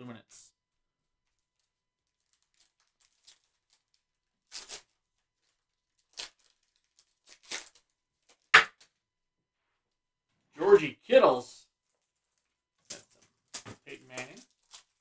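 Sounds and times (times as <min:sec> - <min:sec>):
foil pack tearing and crinkling: 0:02.1 - 0:08.5, 0:12.8 - 0:15.0.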